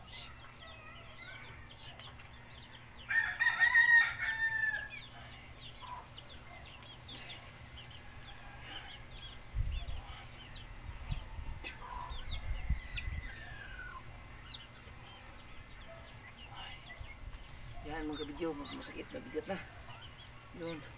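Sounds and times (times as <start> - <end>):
chickens and small birds chirping: 0.0 - 20.9
distant rooster crow: 3.1 - 5.1.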